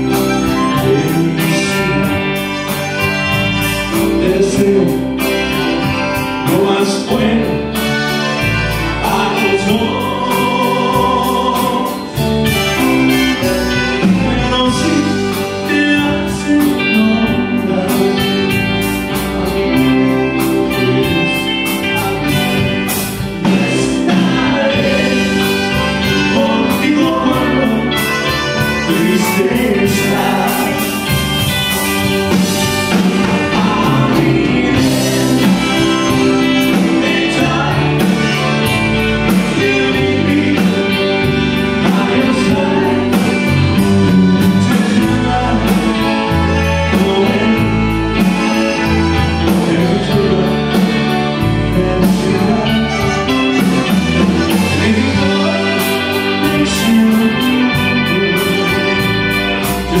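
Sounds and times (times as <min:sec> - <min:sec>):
accordion: 0:00.0 - 1:00.0
drums: 0:00.0 - 1:00.0
electric guitars: 0:00.0 - 1:00.0
keyboard: 0:00.0 - 1:00.0
person singing: 0:00.0 - 1:00.0
trumpet: 0:21.8 - 1:00.0.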